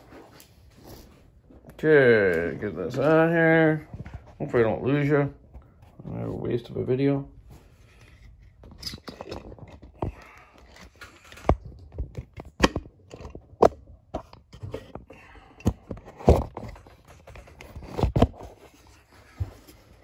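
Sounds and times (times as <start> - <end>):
clicks and scrapes of plastic and metal: 7.8 - 20.0.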